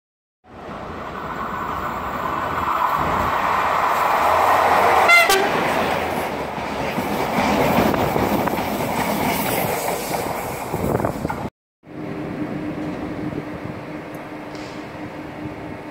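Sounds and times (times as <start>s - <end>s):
train wheels rushing on rails: 0.6s - 15.9s
train horn toot: 5.1s - 5.6s.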